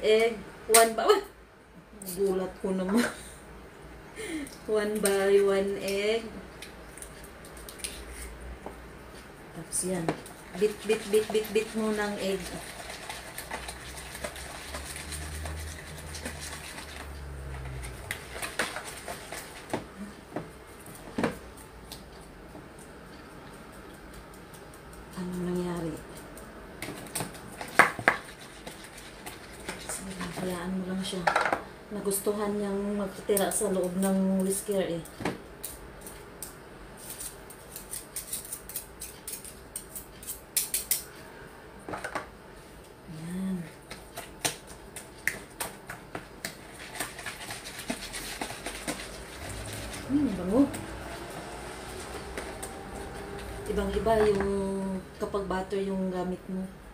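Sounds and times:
whisk tapping plastic bowl: 46.4s - 50.5s.

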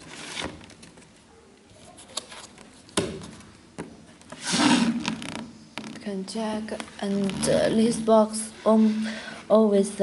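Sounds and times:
cardboard rubbing scrape: 4.3s - 6.1s.

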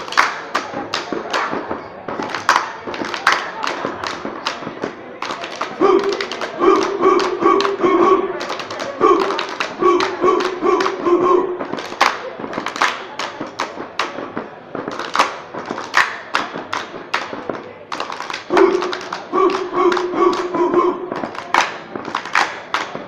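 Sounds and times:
hands clapping: 0.0s - 23.0s
group chanting in unison: 5.4s - 12.0s, 18.5s - 21.7s.

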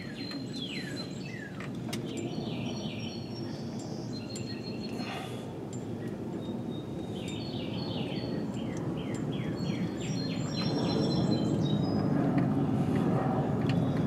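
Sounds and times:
songbird chirping: 0.0s - 12.1s
steady rushing noise: 7.9s - 14.0s.

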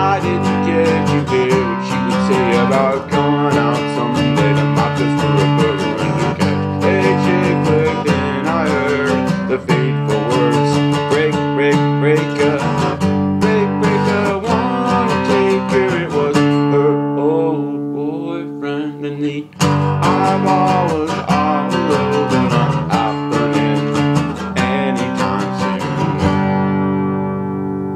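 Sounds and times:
acoustic guitar strumming: 0.0s - 27.9s.

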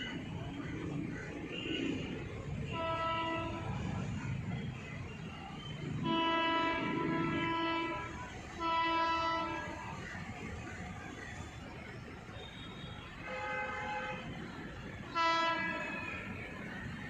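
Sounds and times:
train horn blasts: 2.6s - 4.2s, 6.0s - 10.0s, 15.1s - 16.3s.

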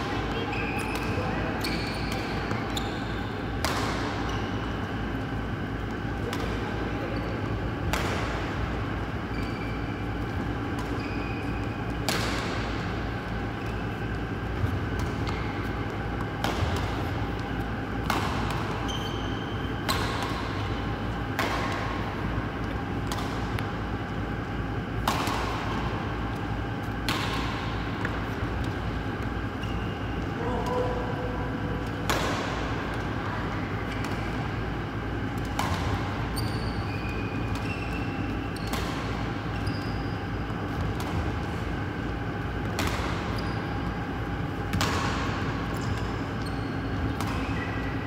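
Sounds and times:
badminton racket hitting shuttlecocks: 14.1s - 22.0s, 25.0s - 26.4s, 31.8s - 33.3s, 35.3s - 36.4s, 37.0s - 39.4s, 42.6s - 43.4s, 44.6s - 46.1s.

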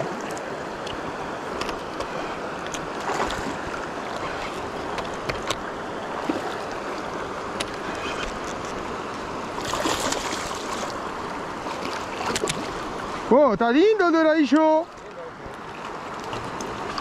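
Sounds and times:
water rushing through rapids: 0.0s - 17.0s
small clicks and splashes: 11.7s - 12.8s, 14.5s - 17.0s.

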